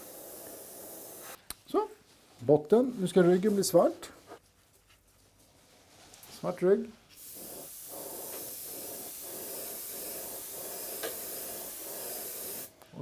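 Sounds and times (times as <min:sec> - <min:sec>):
airbrush spraying hiss: 0:00.0 - 0:01.4, 0:07.1 - 0:12.8.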